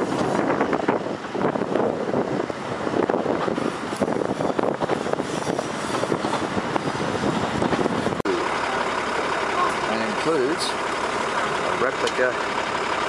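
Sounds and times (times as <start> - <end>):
wind buffeting microphone: 0.0 - 8.3
train running noise: 0.0 - 13.0.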